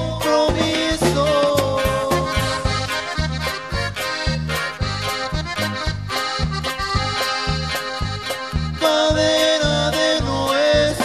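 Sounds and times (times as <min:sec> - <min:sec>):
accordion melody: 0:00.0 - 0:11.0
steady bass beat: 0:00.0 - 0:11.0.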